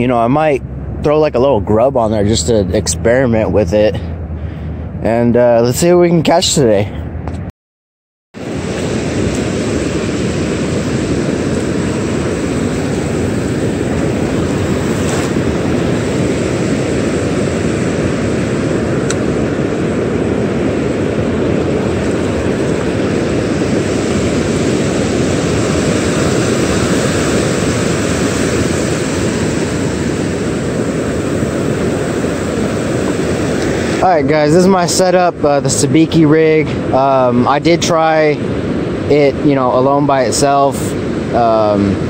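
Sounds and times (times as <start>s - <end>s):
ocean surf roaring: 0.0s - 7.2s, 8.4s - 42.0s.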